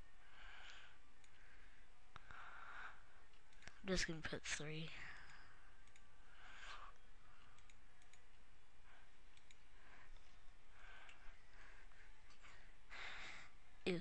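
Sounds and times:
computer mouse clicks: 0.6s - 1.4s, 3.3s - 4.1s, 5.1s - 8.4s, 9.3s - 10.3s, 11.0s - 11.3s.

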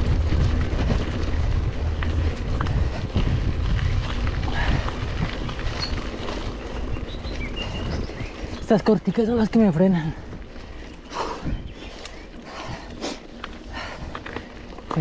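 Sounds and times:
bike clicks and rattles: 0.0s - 15.0s
tyres on dirt track: 0.0s - 15.0s
wind buffeting microphone: 0.0s - 15.0s.

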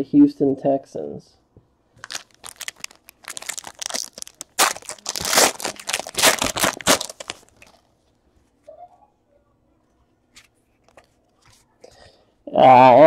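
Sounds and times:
foil wrapper crinkling and ripping: 2.0s - 7.8s.

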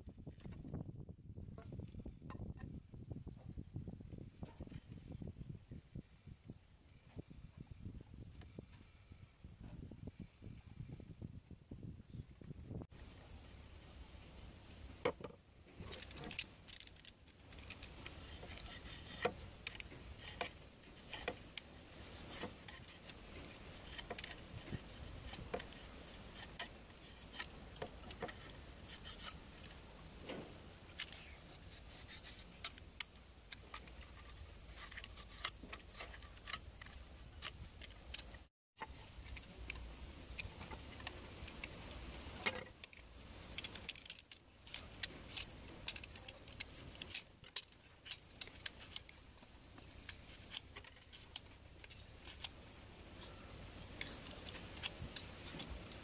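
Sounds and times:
knife scraping bamboo: 15.7s - 56.0s.

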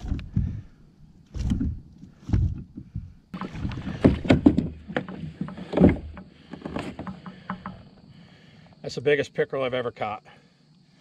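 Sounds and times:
dull thumps against kayak: 1.3s - 7.9s
knocks clicks and rustling: 1.3s - 7.9s.

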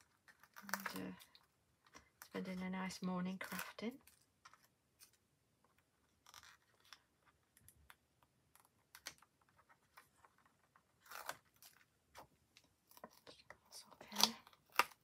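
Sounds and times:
paper backing peeling crackles: 0.0s - 1.4s.

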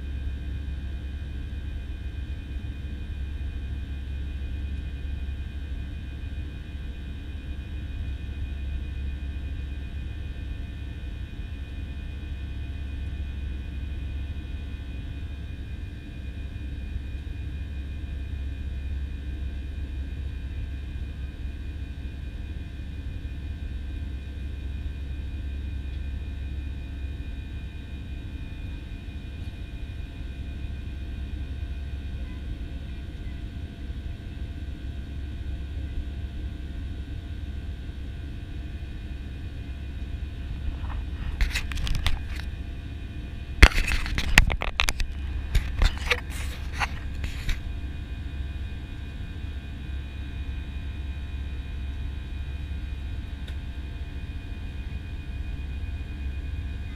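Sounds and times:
airplane engines and airflow rumble: 0.0s - 56.9s
sharp clicks and knocks: 43.6s - 47.6s.

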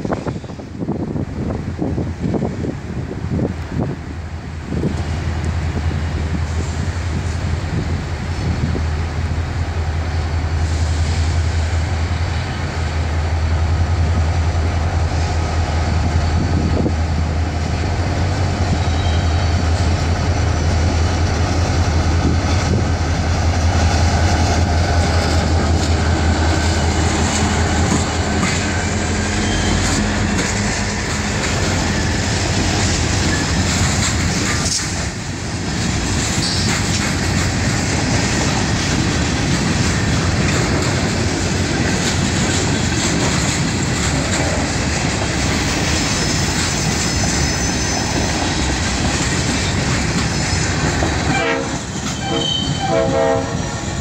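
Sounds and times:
diesel locomotive engine drone: 0.0s - 54.0s
train wheels clickety-clack: 14.1s - 54.0s.

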